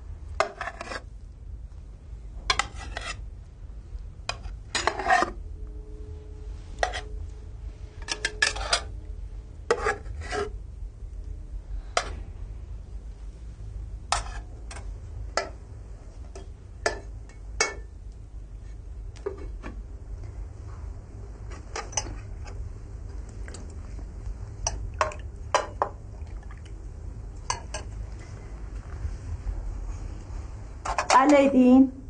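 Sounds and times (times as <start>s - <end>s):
low hum: 0.0s - 32.0s
spoons clinking on plates: 16.4s - 17.9s, 27.4s - 28.0s.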